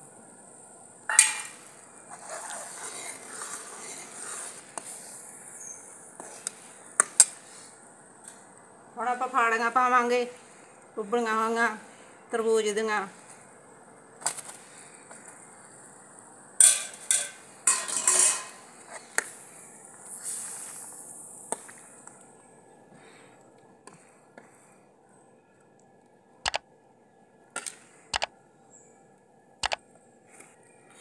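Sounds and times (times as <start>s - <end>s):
ladle clattering on metal pan: 16.6s - 18.6s.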